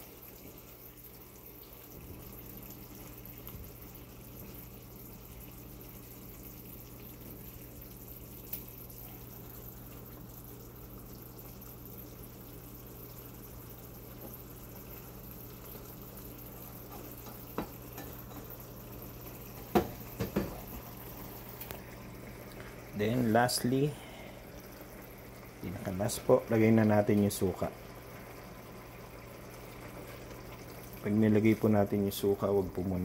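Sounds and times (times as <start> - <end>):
sauce bubbling in a pan: 0.0 - 33.0
spoon knocking against pan: 16.9 - 18.5, 19.6 - 20.7.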